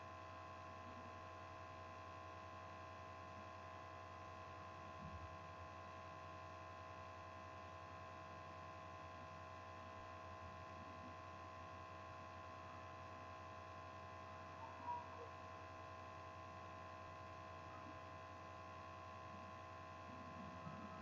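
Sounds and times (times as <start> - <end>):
faint electrical hum: 0.0 - 21.0
faint chirp: 14.5 - 15.3.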